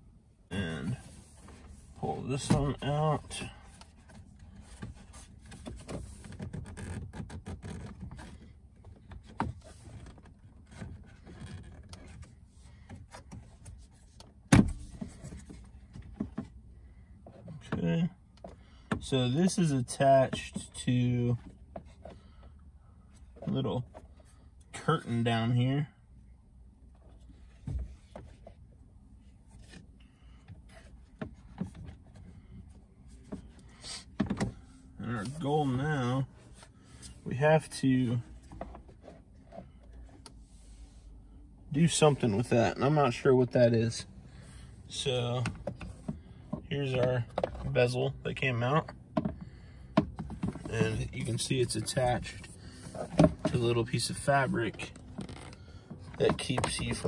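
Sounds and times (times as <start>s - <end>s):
plastic trim rubbing and clicking: 4.1s - 12.4s.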